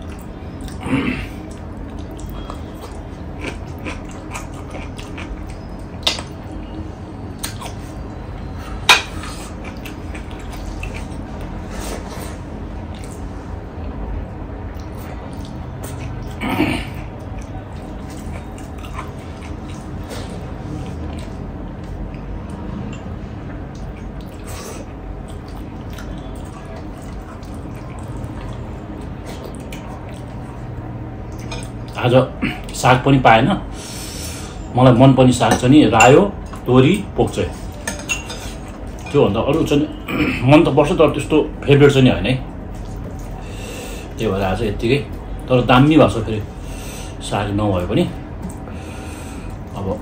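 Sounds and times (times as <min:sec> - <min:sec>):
person chewing food: 0:00.0 - 0:32.0, 0:42.6 - 0:44.2
steady low hum: 0:00.0 - 0:50.0
dishes clicking and clinking: 0:31.3 - 0:31.8, 0:37.7 - 0:39.2.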